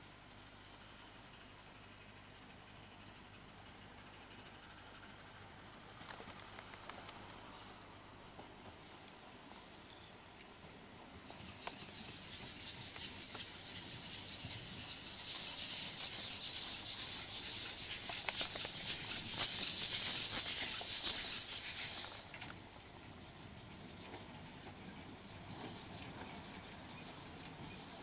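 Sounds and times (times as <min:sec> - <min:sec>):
faint irregular clicks: 0:05.9 - 0:07.5, 0:08.4 - 0:28.0
steam locomotive hissing steam: 0:11.0 - 0:28.0.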